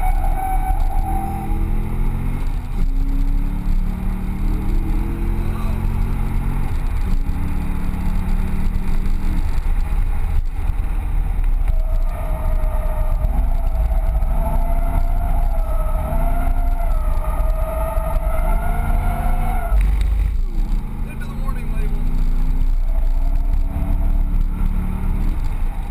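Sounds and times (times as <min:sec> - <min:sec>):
car engine running hard: 0:00.0 - 0:25.9
tyres squealing: 0:11.7 - 0:22.0.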